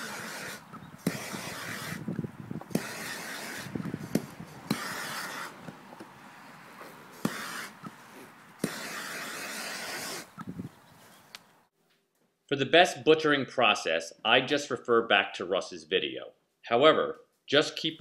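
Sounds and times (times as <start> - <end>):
propane torch hissing: 0.0 - 2.1, 7.2 - 7.8.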